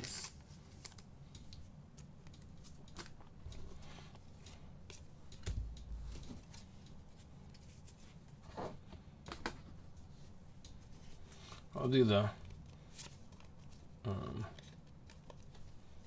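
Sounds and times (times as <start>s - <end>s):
cards handled on a table: 12.4s - 13.9s, 14.6s - 15.8s.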